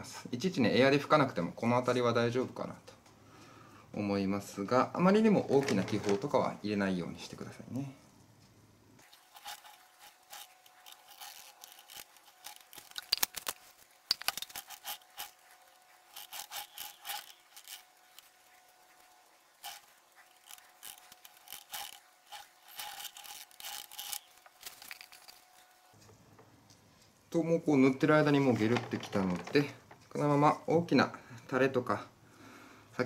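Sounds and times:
paintbrush scrubbing and dabbing: 9.0s - 25.8s.

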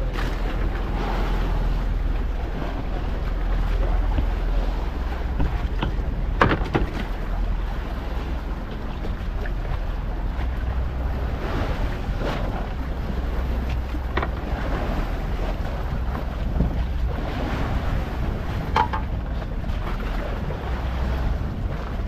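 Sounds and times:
waves washing against boat: 0.0s - 22.0s
wind buffeting microphone: 0.0s - 22.0s
short knocks: 5.4s - 7.1s.

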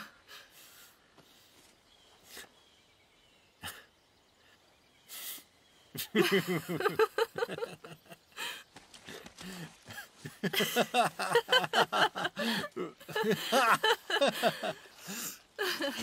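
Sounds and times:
man and woman laughing: 6.0s - 8.6s, 9.4s - 16.0s.

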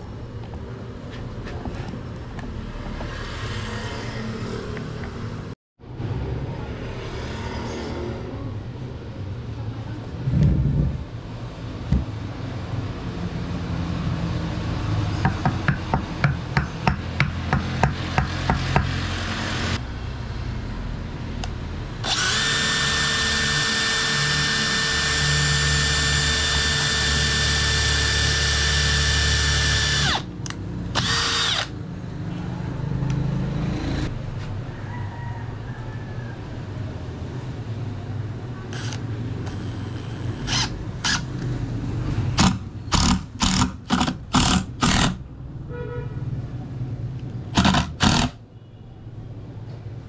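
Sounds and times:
cordless drill boring through wood: 22.0s - 30.3s, 31.0s - 31.7s, 38.7s - 39.8s, 40.4s - 41.3s, 42.4s - 45.2s, 47.6s - 48.4s.

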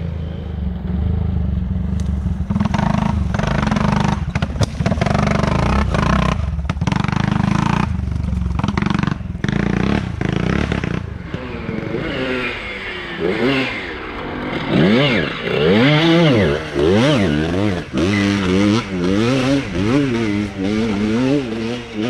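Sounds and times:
dirt bike engine droning: 0.0s - 22.0s
dirt bike engine revving: 0.0s - 22.0s.

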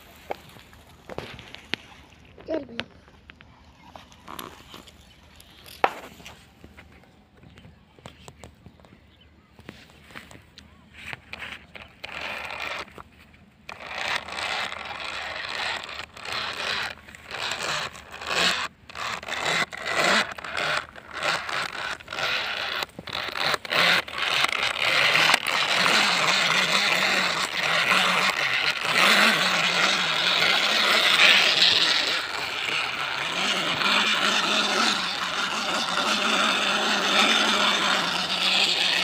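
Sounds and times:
toy truck scraping through dry grass: 4.0s - 6.6s, 11.0s - 39.0s.

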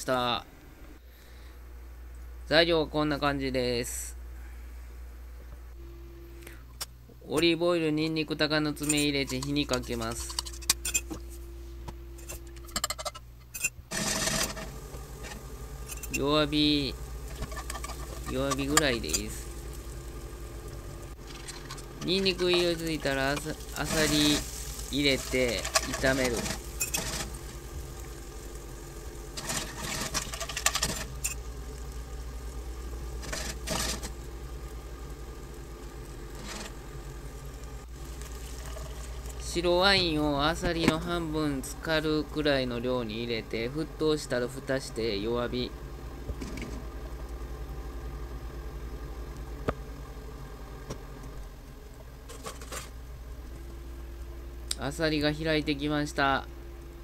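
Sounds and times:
steady low hum: 0.0s - 57.0s
clams sizzling in oil: 13.9s - 39.4s
low bubbling in covered pan: 13.9s - 41.8s.

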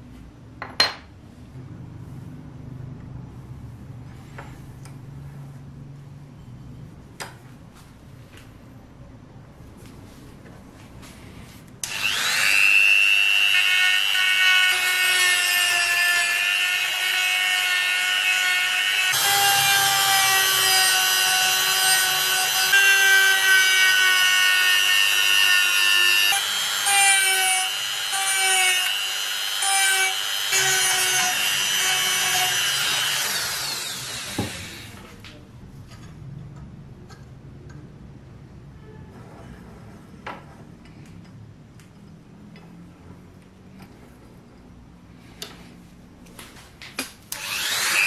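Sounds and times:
rotary tool sanding metal: 11.8s - 34.8s.

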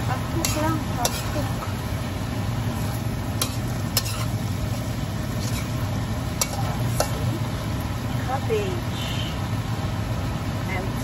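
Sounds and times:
metal spatula scraping wok: 0.0s - 2.0s, 2.7s - 7.4s
steady low hum: 0.0s - 11.0s
vegetables sizzling: 0.0s - 11.0s
spatula clinking on wok: 0.4s - 1.8s, 6.4s - 7.3s.

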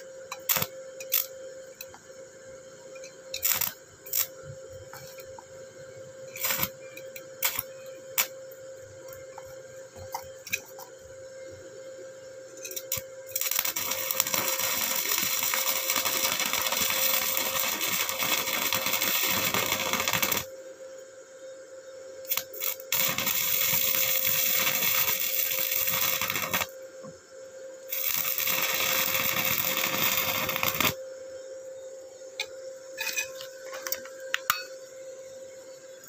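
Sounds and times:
welding arc crackling sizzle: 0.0s - 11.8s, 12.5s - 20.5s, 22.2s - 27.1s, 27.9s - 31.0s
welding arc strikes: 0.3s - 1.3s, 3.3s - 4.3s, 6.3s - 6.8s, 7.4s - 8.3s, 12.7s - 20.5s, 22.2s - 26.7s, 27.9s - 31.0s.

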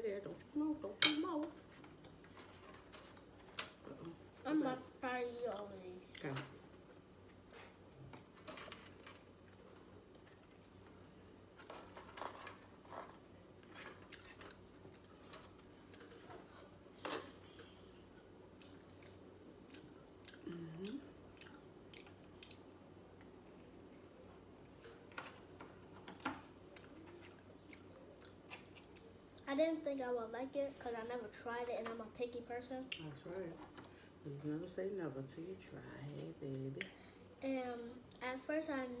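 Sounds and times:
metal spoon over foil pans: 11.6s - 17.8s.

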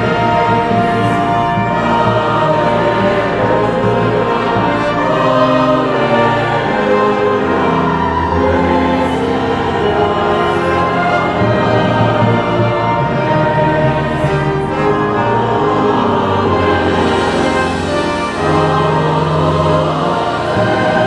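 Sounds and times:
choir singing held chords: 0.0s - 21.0s
orchestral accompaniment: 0.0s - 21.0s.

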